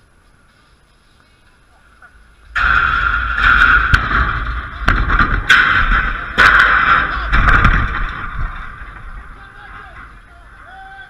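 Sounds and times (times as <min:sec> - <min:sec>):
rumbling and scraping on microphone: 0:00.1 - 0:10.7
sharp knocks: 0:02.6 - 0:10.3.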